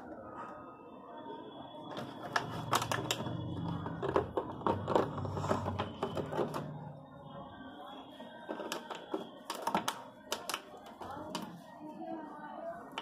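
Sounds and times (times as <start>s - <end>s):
dog chewing plastic bottle: 2.0s - 6.8s, 8.5s - 11.5s.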